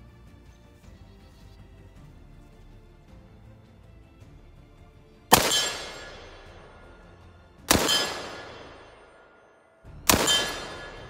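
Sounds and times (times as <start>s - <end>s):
rifle shots with echo: 5.3s - 11.0s.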